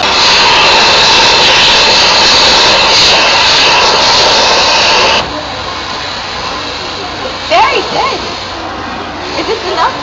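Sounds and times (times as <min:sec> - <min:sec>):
rush of air from stuffing machine: 0:00.0 - 0:05.5.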